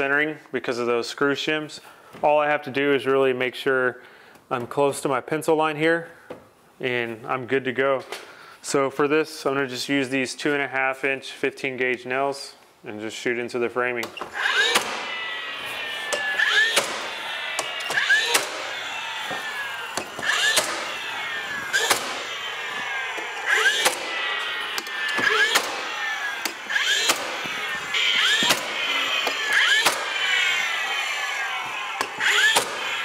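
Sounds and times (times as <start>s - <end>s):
nail gun shots: 14.5s - 15.1s, 16.1s - 18.8s, 20.0s - 21.0s, 21.7s - 22.4s, 23.5s - 24.2s, 24.8s - 27.4s, 28.2s - 30.2s, 32.0s - 32.9s.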